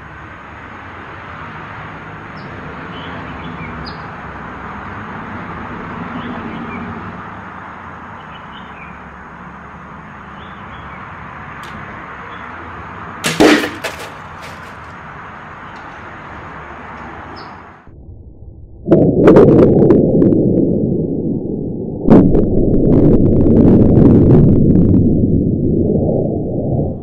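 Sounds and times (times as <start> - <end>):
arrow hitting foam target: 13.2 - 14.9
bow shot: 13.2 - 14.9.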